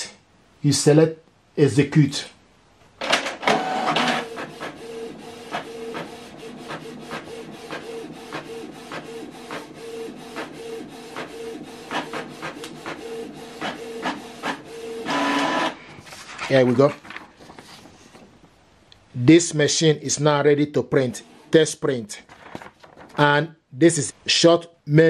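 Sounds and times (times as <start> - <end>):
printer page feed whirr: 3.0 - 17.5
printer head shuttling with whine: 3.4 - 4.2.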